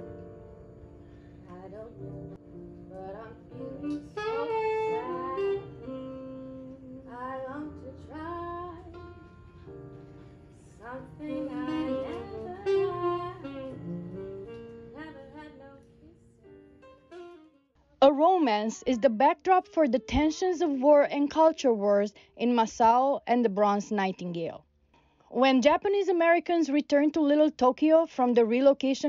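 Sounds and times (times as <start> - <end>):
held chords: 0.0 - 20.8
jazz saxophone melody: 0.0 - 20.9.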